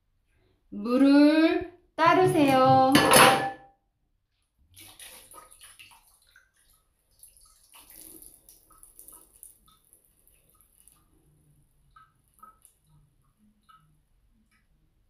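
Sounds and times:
water dripping: 4.6s - 15.0s.

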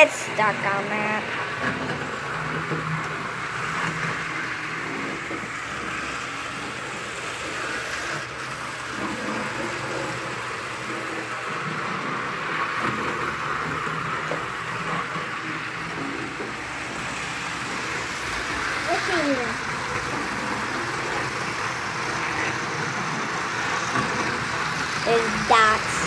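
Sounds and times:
model train whirring on track: 0.0s - 26.0s.

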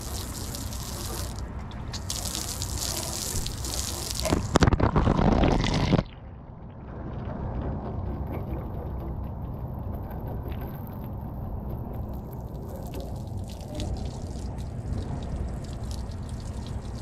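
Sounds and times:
water pattering and dripping: 0.0s - 5.0s, 5.8s - 17.0s
hose water splashing on camera: 0.0s - 6.0s, 7.8s - 17.0s
low rumble: 4.3s - 17.0s.

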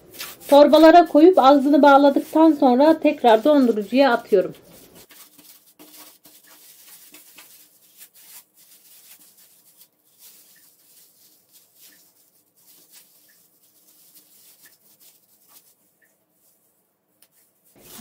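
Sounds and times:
plastic bag rustling and crinkling: 0.0s - 18.0s.

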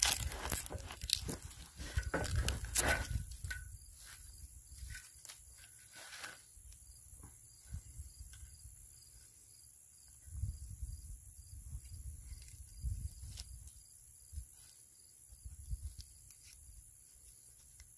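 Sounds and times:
knife scraping wood: 0.0s - 3.5s, 4.8s - 6.5s.

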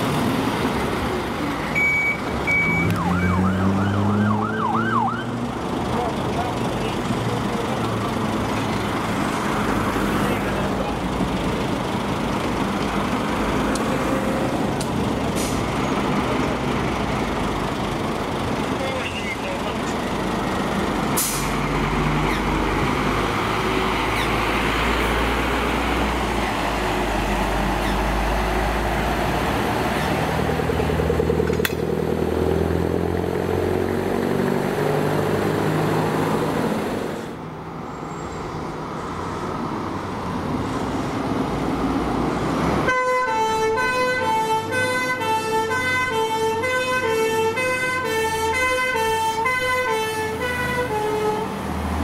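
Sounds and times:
fire truck engine and tyres rumbling: 0.0s - 52.0s
two-tone siren: 1.8s - 5.4s, 42.9s - 51.4s.

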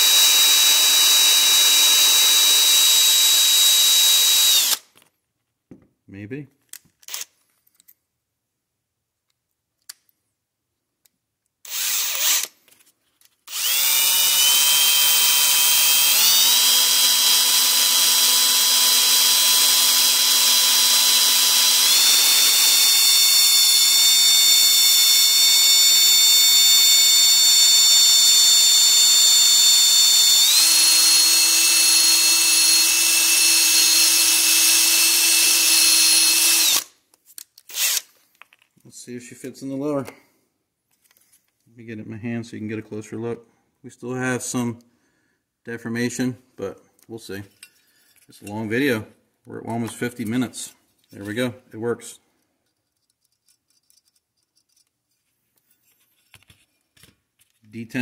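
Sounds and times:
high-speed power tool running: 0.0s - 4.8s, 11.7s - 12.5s, 13.5s - 36.9s.

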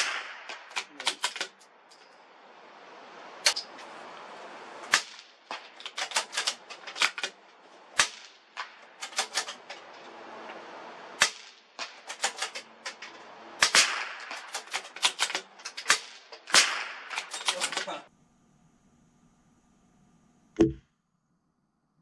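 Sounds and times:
rifle shots: 0.0s - 1.5s, 4.9s - 7.3s, 8.0s - 9.6s, 11.2s - 12.6s, 13.6s - 17.6s.

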